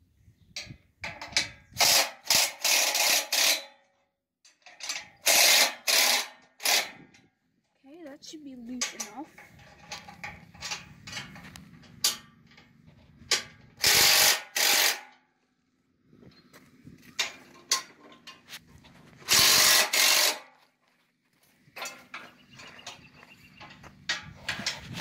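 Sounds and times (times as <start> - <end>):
power driver spinning nuts: 13.7 - 15.0, 18.4 - 20.5.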